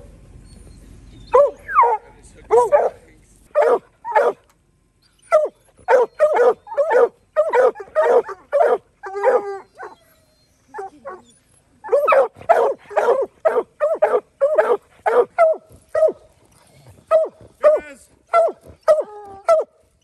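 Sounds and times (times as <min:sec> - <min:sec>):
hounds barking excitedly: 0:01.3 - 0:04.5, 0:05.3 - 0:10.0, 0:11.8 - 0:19.8.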